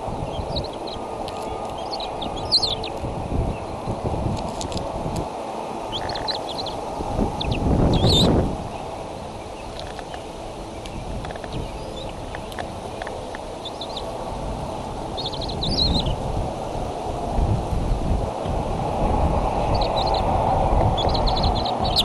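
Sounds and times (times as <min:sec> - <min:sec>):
wind rumbling on microphone: 0:00.0 - 0:22.0
high bird chirps: 0:00.2 - 0:03.0, 0:05.9 - 0:06.8, 0:07.4 - 0:08.3, 0:21.0 - 0:22.0.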